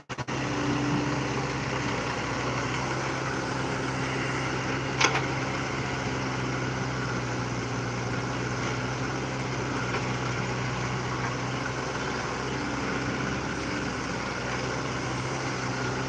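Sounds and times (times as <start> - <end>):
excavator diesel engine running: 0.0 - 16.0.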